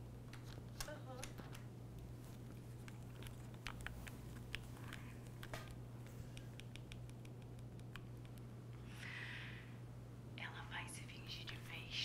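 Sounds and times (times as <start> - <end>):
steady low hum: 0.0 - 12.0
run of small clicks: 2.8 - 8.5.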